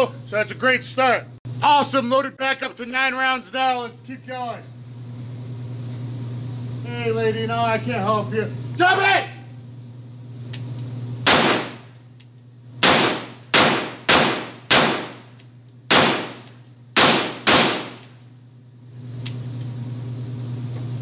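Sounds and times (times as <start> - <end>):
steady low hum: 0.0 - 21.0
revolver shots ringing indoors: 10.5 - 18.3.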